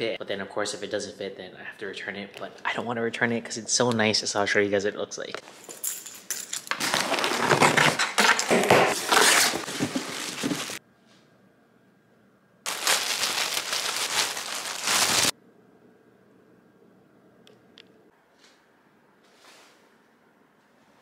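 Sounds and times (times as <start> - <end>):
packing tape and paper crinkling: 6.7 - 10.8, 12.7 - 15.3.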